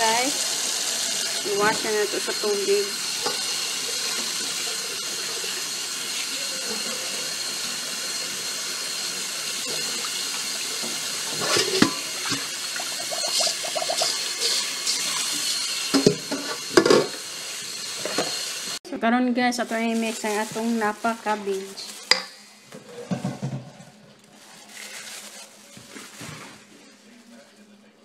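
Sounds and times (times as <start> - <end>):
faucet running: 0.0 - 18.8.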